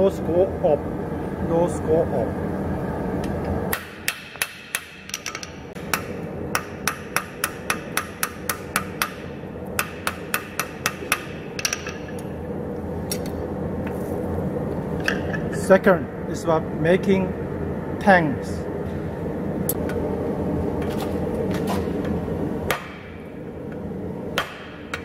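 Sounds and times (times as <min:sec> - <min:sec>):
hammer striking metal on anvil: 0:03.7 - 0:12.2, 0:24.4 - 0:25.0.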